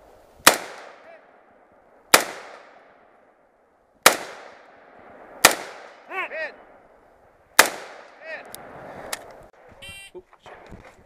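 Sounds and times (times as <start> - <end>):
rifle shots with echo: 0.4 - 3.4, 4.0 - 6.1, 7.6 - 8.2.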